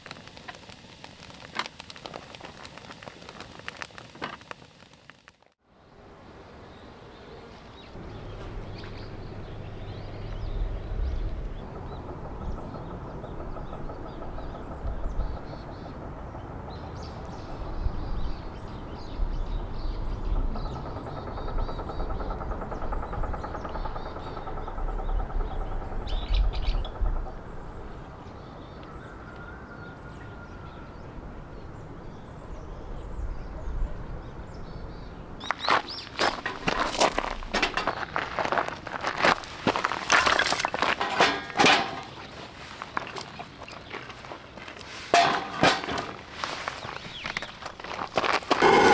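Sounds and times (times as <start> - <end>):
low outdoor rumble: 0.0 - 29.2
small birds chirping: 5.8 - 29.3, 30.6 - 45.0, 46.1 - 48.9
footsteps on gravel: 35.4 - 48.9.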